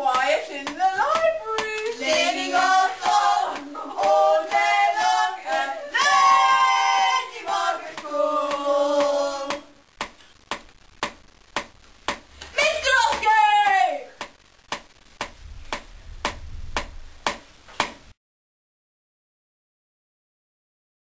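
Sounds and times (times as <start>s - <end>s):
voices singing a comic chant: 0.0s - 9.8s.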